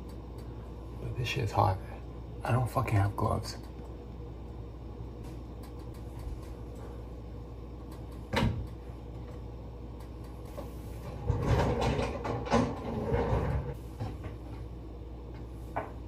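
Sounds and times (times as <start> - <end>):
steady low hum: 0.0 - 16.0
clattering and rummaging in cupboard: 11.0 - 14.4.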